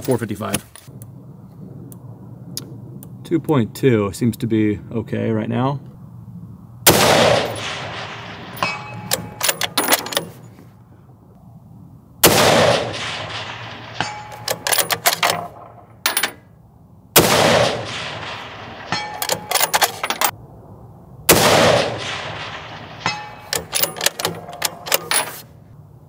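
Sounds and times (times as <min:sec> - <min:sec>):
rifle shots echoing: 0:06.8 - 0:10.4, 0:12.2 - 0:16.4, 0:17.2 - 0:20.3, 0:21.3 - 0:25.2
rifle bolt metallic clicks: 0:07.4 - 0:10.4, 0:12.7 - 0:16.4, 0:17.6 - 0:20.3, 0:23.0 - 0:25.5.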